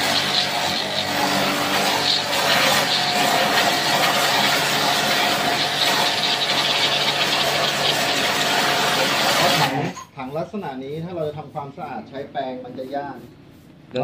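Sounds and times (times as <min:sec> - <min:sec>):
pressure washer motor hum: 0:00.0 - 0:10.0
water jet hissing: 0:00.0 - 0:14.0.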